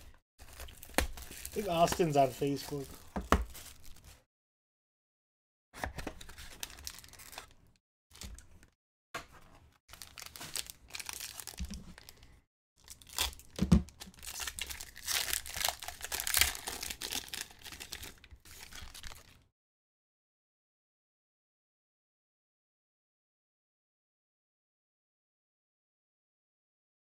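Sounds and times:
foil wrapper crinkling and tearing: 0.4 - 4.2, 6.2 - 8.4, 9.9 - 19.4.

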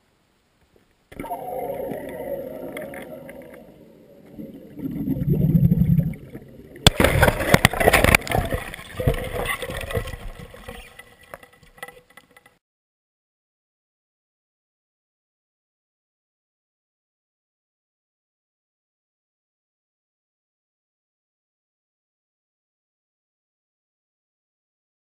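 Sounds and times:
underwater rushing and rumble: 0.2 - 12.4
churning water and ice crackles: 1.1 - 12.6.

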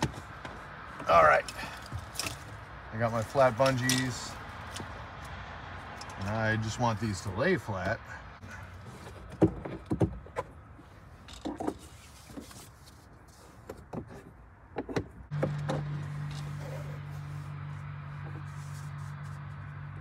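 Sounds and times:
bungee cords clicking and knocking: 0.0 - 6.3.

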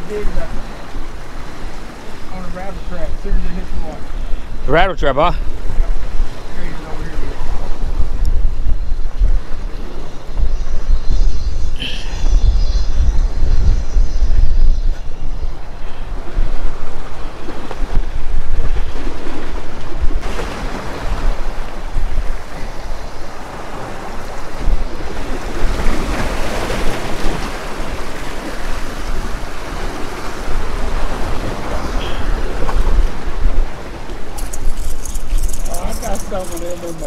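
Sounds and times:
waves splashing against rocks: 0.0 - 8.4, 16.2 - 37.0
wind buffeting microphone: 0.0 - 37.0.

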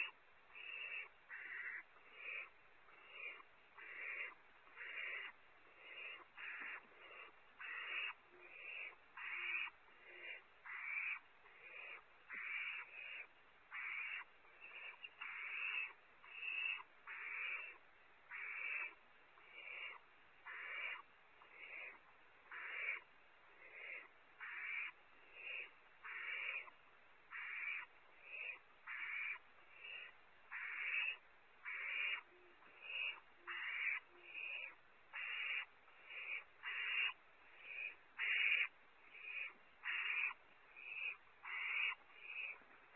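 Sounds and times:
owlets raspy hissing calls: 0.0 - 42.6.

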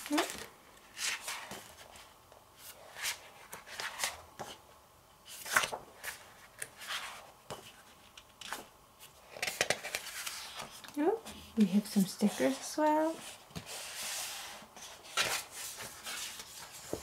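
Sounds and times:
pages turning with swish: 13.6 - 17.0.

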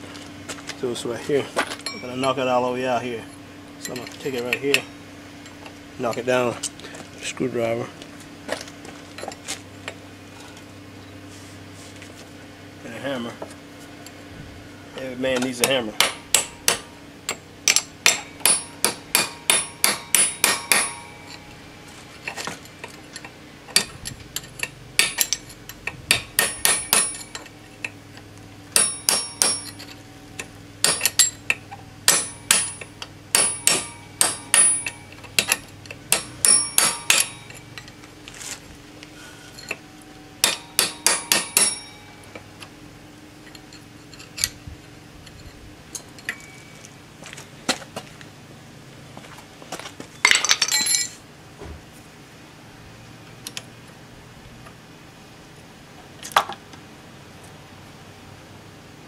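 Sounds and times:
hammer striking metal: 15.4 - 21.7, 25.0 - 25.5, 26.1 - 27.5, 28.7 - 38.0, 40.4 - 42.5.

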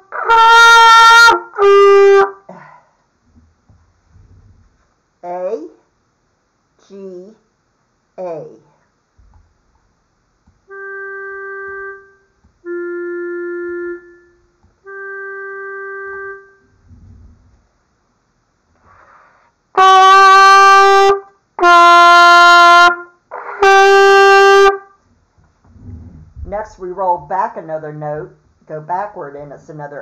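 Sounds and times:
trumpet playing notes: 0.0 - 2.4, 10.7 - 16.8, 19.8 - 24.9
soft reference notes: 10.7 - 17.6.

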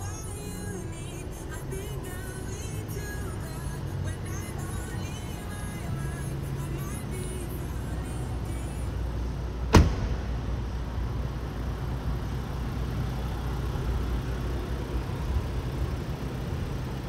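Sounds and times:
car engine idling: 0.0 - 17.0
car door shutting: 9.6 - 10.5.

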